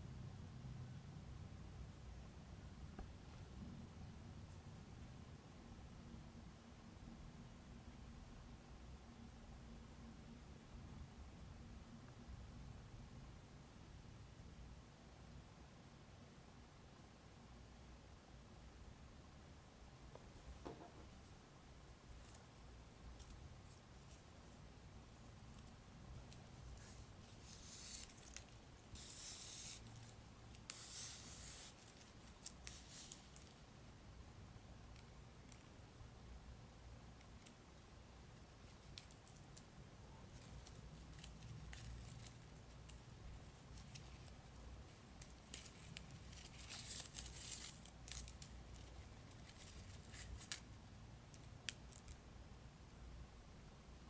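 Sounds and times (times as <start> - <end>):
ribbon strings sliding rustling: 22.1 - 33.6, 40.3 - 52.2.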